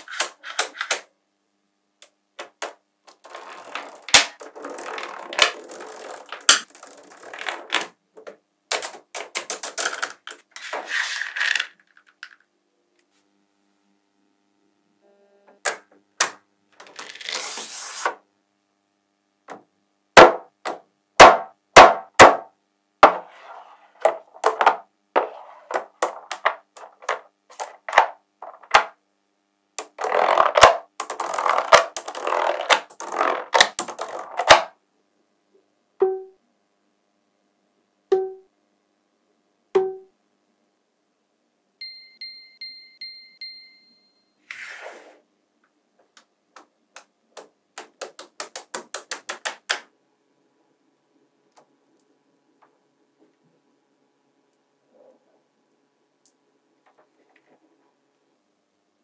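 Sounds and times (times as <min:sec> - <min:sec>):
magnetic balls rattling scrapes: 0:03.1 - 0:07.9, 0:09.6 - 0:12.4.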